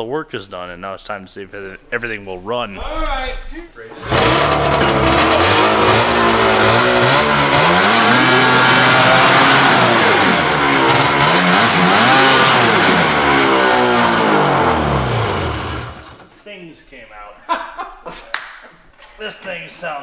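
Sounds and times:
snowmobile engine revving: 0:03.9 - 0:16.2.

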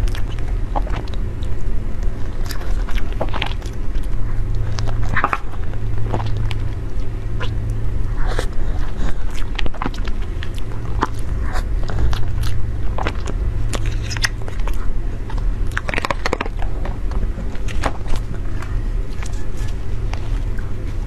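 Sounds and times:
wet chewing with mouth clicks: 0:00.0 - 0:21.0.

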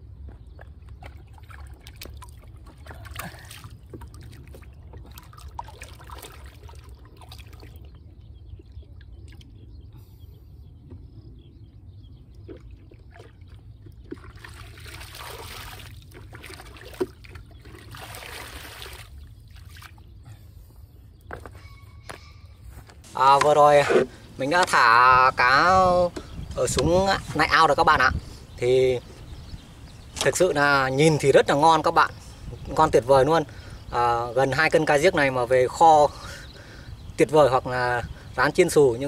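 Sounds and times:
small splashes and knocks: 0:00.3 - 0:08.0, 0:12.3 - 0:20.1
water pouring and splashing: 0:00.6 - 0:08.0, 0:12.4 - 0:20.0.

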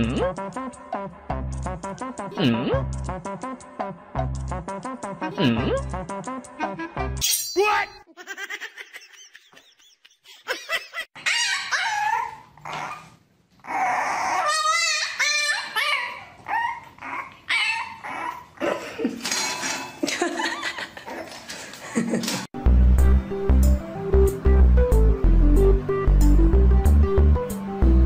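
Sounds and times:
puppy whining and yipping: 0:11.2 - 0:18.6.

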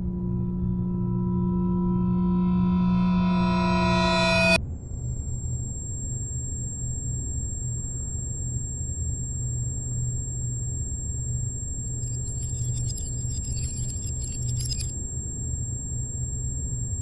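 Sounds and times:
faint thin high tones: 0:03.4 - 0:17.0
crackling hiss: 0:04.5 - 0:17.0.

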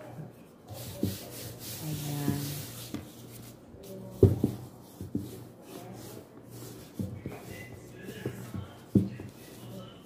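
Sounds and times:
hand rubbing flour on dough: 0:00.0 - 0:10.0
rolling pin knocking on board: 0:04.2 - 0:05.4.

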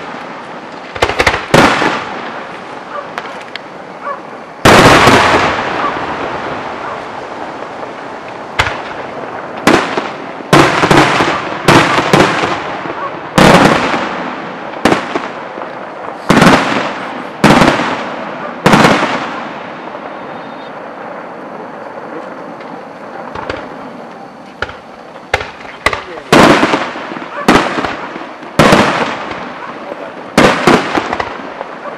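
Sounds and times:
firework bangs echoing: 0:00.0 - 0:31.9
faint firework pops: 0:22.2 - 0:23.7, 0:24.5 - 0:26.8.

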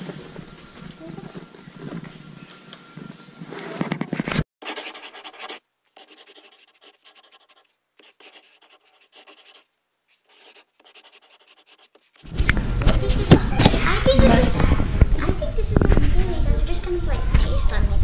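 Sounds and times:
room noise: 0:00.0 - 0:16.4
pen scratching on paper: 0:04.6 - 0:09.6, 0:10.2 - 0:13.1.

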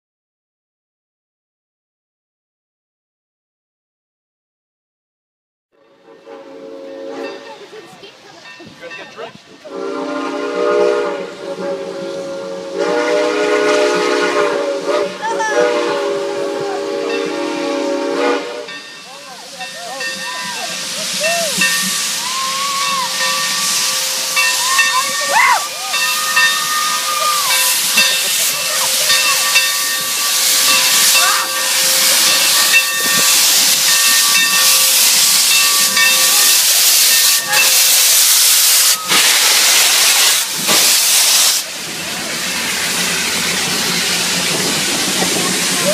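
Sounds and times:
steam locomotive whistle: 0:05.9 - 0:07.6, 0:09.6 - 0:18.9, 0:19.7 - 0:41.7
steam hissing: 0:06.0 - 0:45.9.

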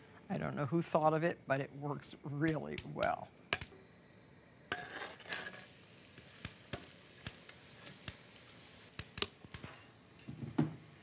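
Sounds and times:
onions popping in butter: 0:04.7 - 0:11.0
onions scraped into skillet: 0:04.7 - 0:11.0.

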